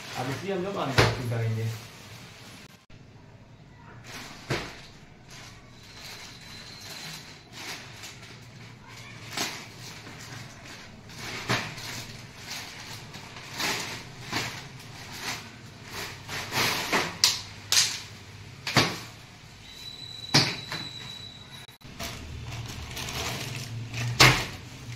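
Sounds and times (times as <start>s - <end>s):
plastic packaging crinkling: 0.0s - 2.7s, 4.0s - 18.0s, 21.8s - 24.9s.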